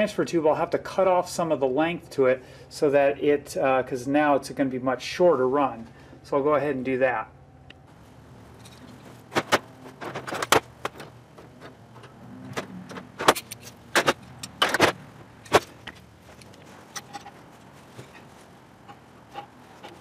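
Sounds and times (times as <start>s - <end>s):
metal tools clinking on workbench: 16.4s - 17.4s.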